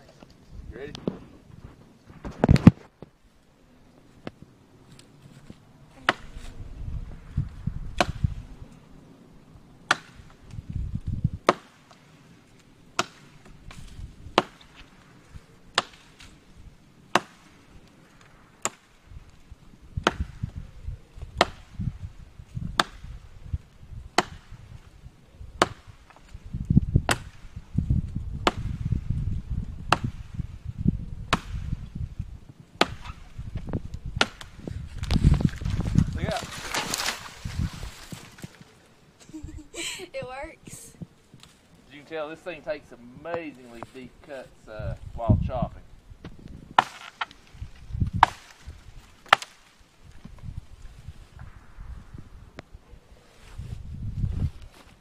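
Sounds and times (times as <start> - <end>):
blade chopping into wood: 8.0 - 8.3, 9.9 - 10.3, 11.4 - 12.0, 13.0 - 14.8, 15.7 - 16.3, 17.1 - 17.5, 20.0 - 20.4, 21.4 - 21.7, 22.8 - 23.1, 24.2 - 24.5, 25.6 - 26.2, 28.4 - 28.8, 31.3 - 31.7, 32.8 - 33.2, 34.2 - 34.6, 46.8 - 47.4, 48.1 - 48.6, 49.2 - 49.7.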